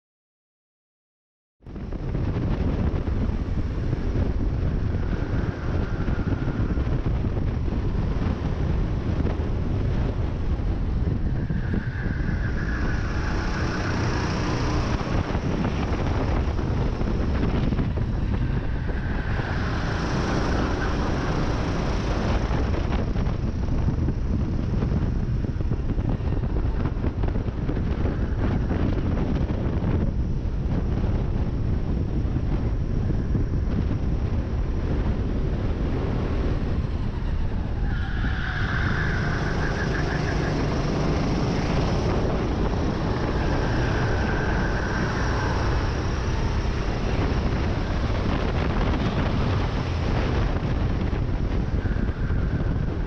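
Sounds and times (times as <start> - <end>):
wind buffeting microphone: 1.6 - 53.0
kart engine running hard: 39.0 - 52.6.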